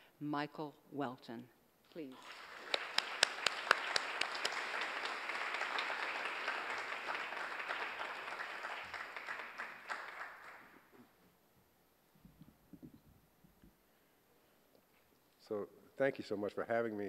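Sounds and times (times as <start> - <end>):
audience applauding: 2.1 - 11.0.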